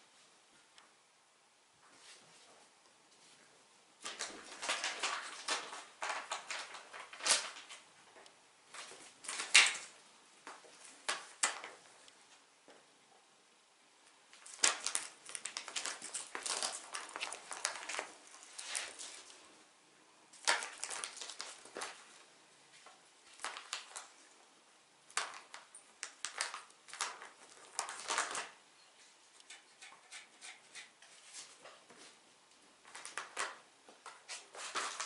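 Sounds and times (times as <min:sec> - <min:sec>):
plastic pouch crinkling: 0:14.4 - 0:19.4, 0:20.4 - 0:22.1, 0:23.3 - 0:24.1, 0:25.1 - 0:28.6.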